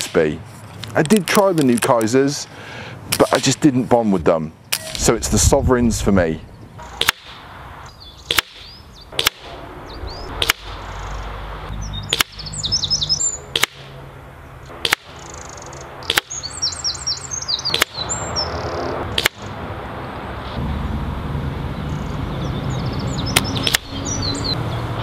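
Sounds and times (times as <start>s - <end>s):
birds chirping: 0.0s - 25.0s
air rifle shots cracking: 6.8s - 7.5s, 8.2s - 9.6s, 10.3s - 11.1s, 12.1s - 12.8s, 13.5s - 14.0s, 14.7s - 16.4s, 17.7s - 18.0s, 19.0s - 19.5s.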